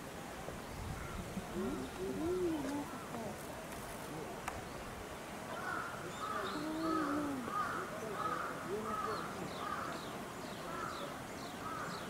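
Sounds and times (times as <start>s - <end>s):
crow cawing: 5.6s - 10.0s, 10.7s - 11.0s, 11.6s - 12.0s.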